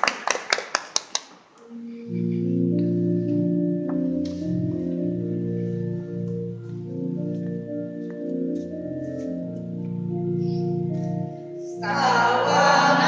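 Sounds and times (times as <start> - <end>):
audience applause: 0.0 - 1.3
sustained organ-like chords: 1.6 - 13.0.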